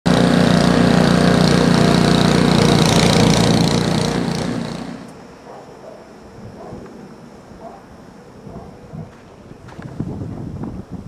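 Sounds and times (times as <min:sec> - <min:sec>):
snowblower engine running: 0:00.0 - 0:05.2.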